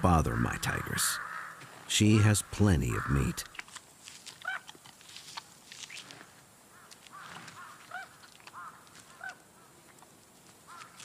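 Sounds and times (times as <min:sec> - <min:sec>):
crows calling: 0:00.1 - 0:03.6, 0:04.4 - 0:04.7, 0:06.7 - 0:09.8, 0:10.6 - 0:11.0.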